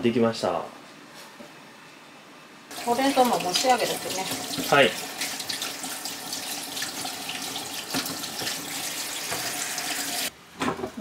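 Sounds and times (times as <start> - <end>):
tap water running into sink: 2.7 - 10.3.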